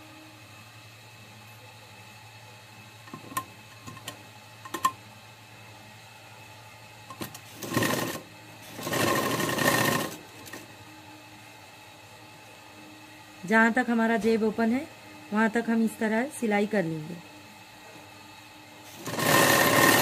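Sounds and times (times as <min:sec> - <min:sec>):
sewing machine stitching: 0:07.5 - 0:10.6, 0:18.9 - 0:20.0.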